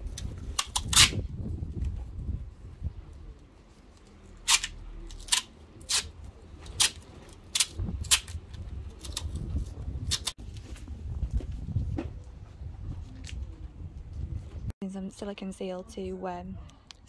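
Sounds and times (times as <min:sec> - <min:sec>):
duct tape ripping off roll: 0:00.1 - 0:01.2, 0:04.4 - 0:08.4, 0:09.0 - 0:10.3.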